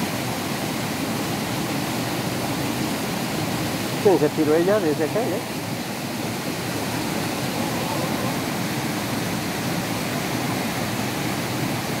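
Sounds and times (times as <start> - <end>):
waterfall pouring into pool: 0.0 - 12.0.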